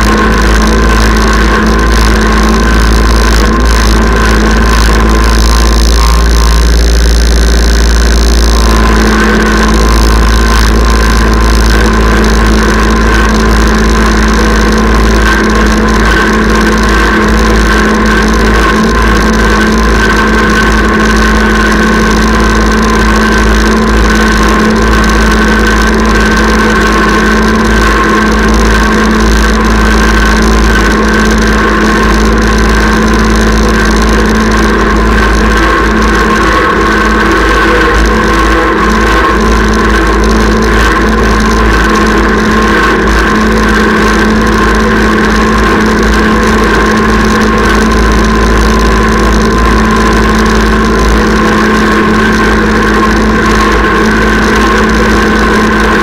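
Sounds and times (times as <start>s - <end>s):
steady whine: 0.0s - 56.0s
tractor diesel engine running: 0.0s - 56.0s.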